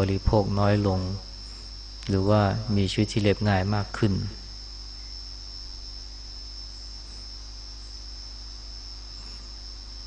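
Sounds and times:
electrical mains hum: 0.0s - 10.0s
high-pitched insect trill: 0.0s - 10.0s.

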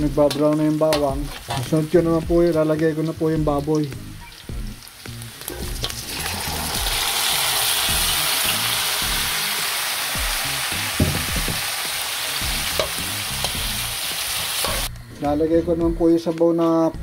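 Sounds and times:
meat sizzling in hot oil: 0.0s - 14.9s
metal spatula scraping wok: 14.3s - 14.9s.

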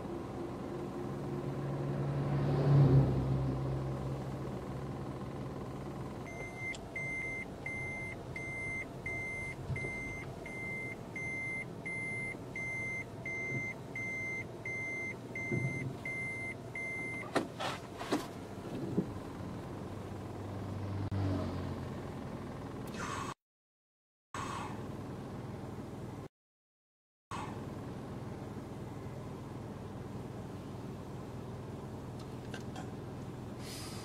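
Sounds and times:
vehicle warning beeper: 6.3s - 17.4s.

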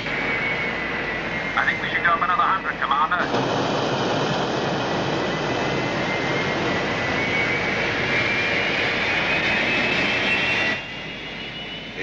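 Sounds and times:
spacecraft engines rushing: 0.0s - 12.0s
thin rising whine: 0.0s - 12.0s.

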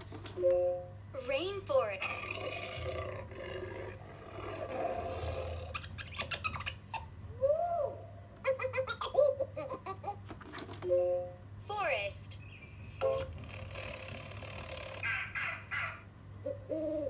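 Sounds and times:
animal calls from small speaker: 13.0s - 17.0s.

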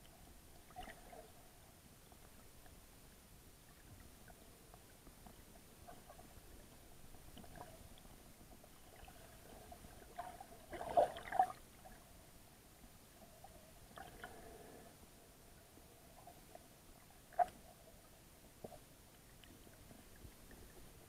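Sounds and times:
faint underwater clicks and crackles: 0.0s - 21.0s
splashing and bubbles: 8.9s - 11.6s.

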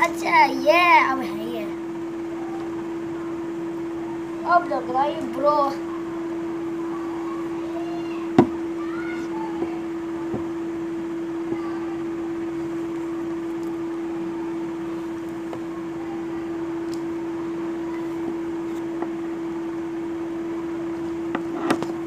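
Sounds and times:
steady hum: 0.0s - 22.0s.

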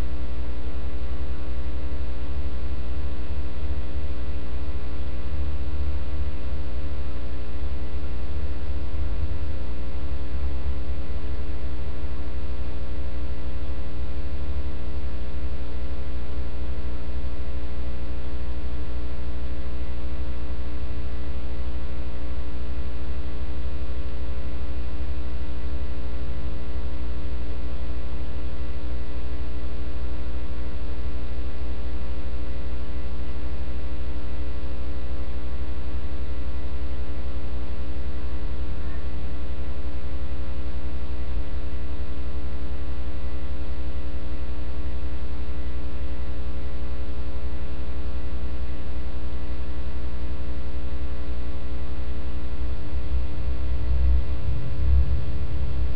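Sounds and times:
electrical mains hum: 0.0s - 55.9s.

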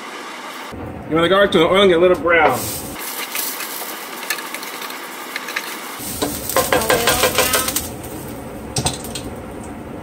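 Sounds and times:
garlic sizzling in hot oil: 2.6s - 8.4s
spatula knocking against pan: 6.6s - 7.6s.

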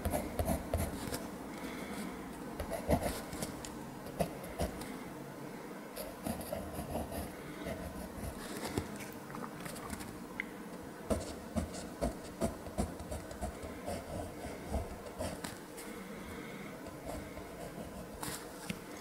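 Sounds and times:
pencil scratching on paper: 0.0s - 1.2s, 2.6s - 3.5s, 6.0s - 8.6s, 11.1s - 15.5s, 16.9s - 18.4s.

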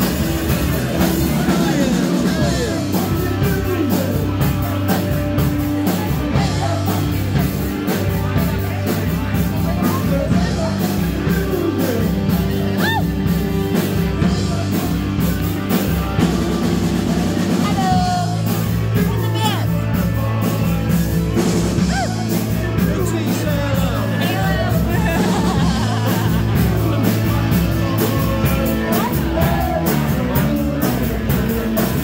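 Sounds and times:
live rock band: 0.0s - 32.0s.

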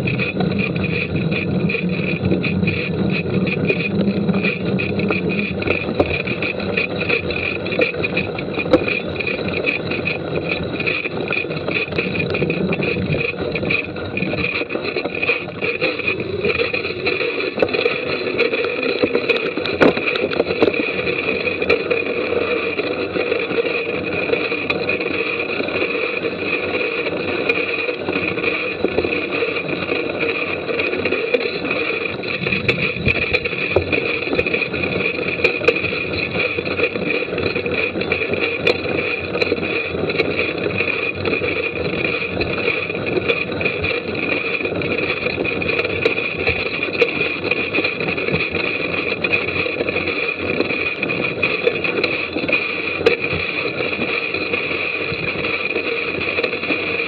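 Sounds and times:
bike knocks and rattles: 0.0s - 22.3s, 31.3s - 54.1s
tyre and wind noise: 0.0s - 57.0s.

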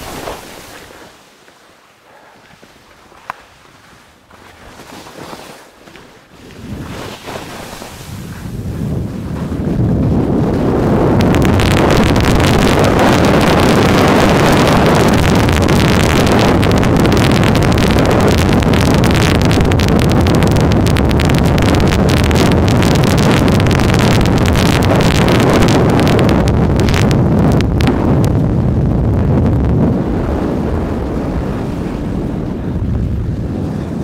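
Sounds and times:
wind rushing over microphone: 0.0s - 1.2s, 6.2s - 34.0s
skis sliding on hard snow: 0.0s - 27.1s.

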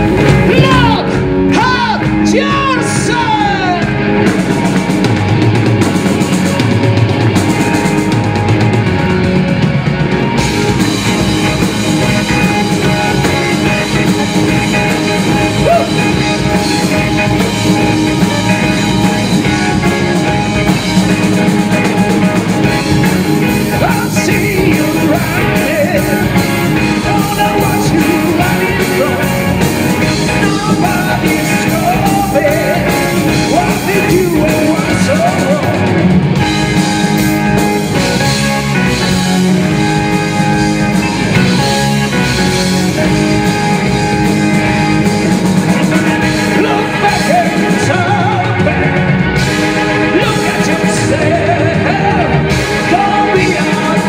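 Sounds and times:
live rock band playing: 0.0s - 54.0s
man singing: 0.4s - 4.0s, 15.5s - 16.4s, 23.5s - 36.2s, 46.1s - 54.0s.

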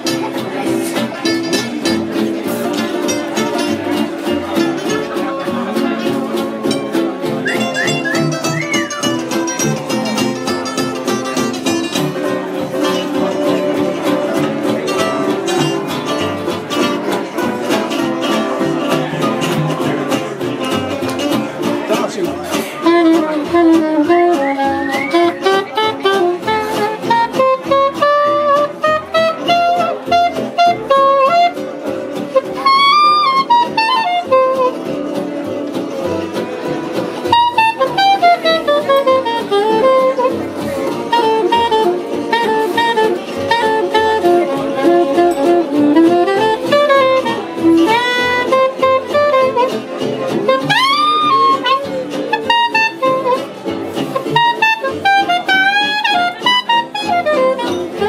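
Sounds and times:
strummed guitars and mandolin: 0.0s - 58.0s
soprano saxophone jazz solo: 22.7s - 35.1s, 37.2s - 58.0s.

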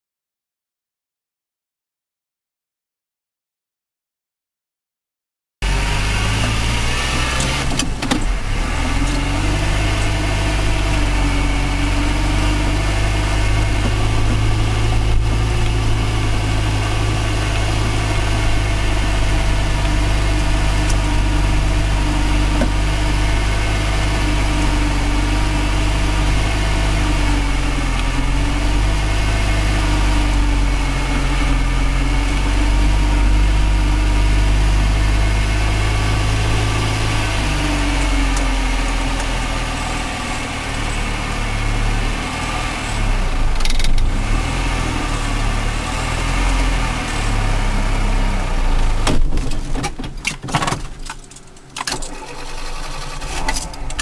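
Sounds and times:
car engine droning: 5.6s - 54.0s.

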